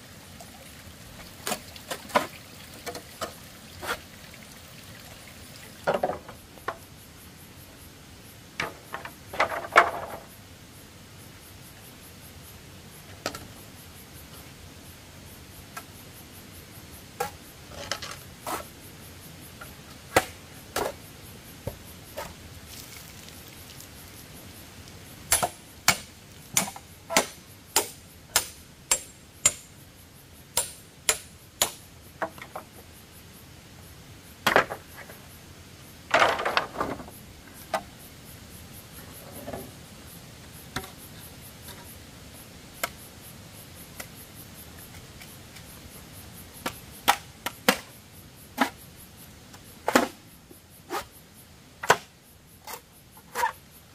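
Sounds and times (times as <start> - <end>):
bamboo clattering: 1.2 - 4.1, 5.8 - 6.8, 8.6 - 10.3, 36.1 - 37.9
hand tool striking bamboo: 25.3 - 29.6, 30.6 - 31.8.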